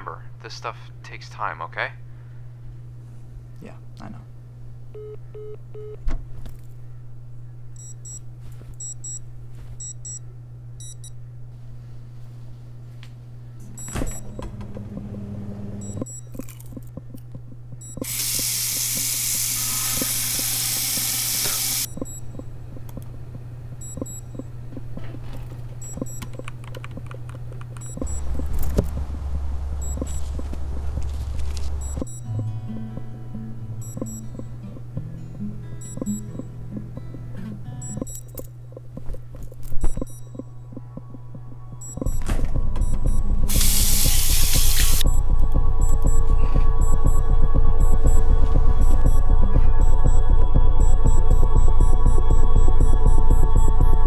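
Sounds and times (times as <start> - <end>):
low steady hum: 0.0 - 54.0
deep tone: 13.6 - 17.0, 27.8 - 38.2, 39.9 - 54.0
high electronic beeps: 15.8 - 16.5, 17.8 - 22.5, 23.8 - 24.5, 25.8 - 26.5, 27.8 - 31.1, 31.7 - 32.5, 33.8 - 34.5, 35.8 - 36.5, 37.8 - 38.5, 41.8 - 48.2.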